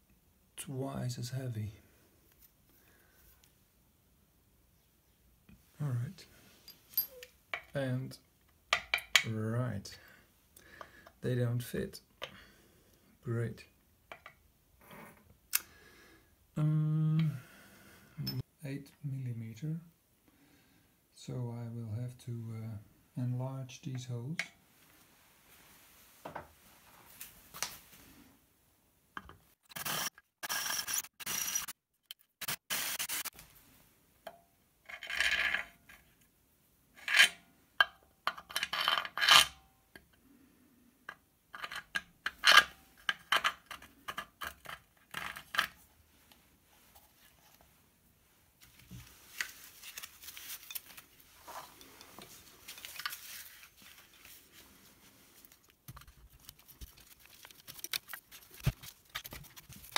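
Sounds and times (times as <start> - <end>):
metal tools clinking and scraping: 6.6 - 7.7, 18.2 - 18.4, 49.4 - 54.3
scratchy handling: 48.6 - 59.9.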